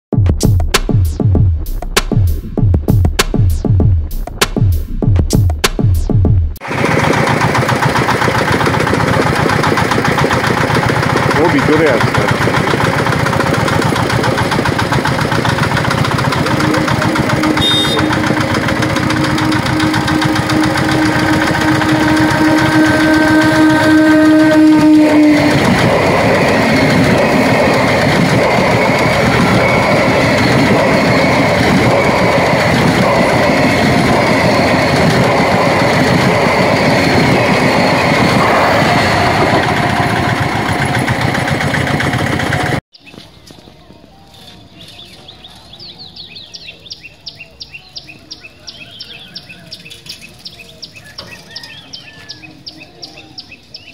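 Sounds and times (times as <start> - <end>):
train wheels rushing on rails: 6.6 - 42.8
train horn blast: 15.9 - 41.0.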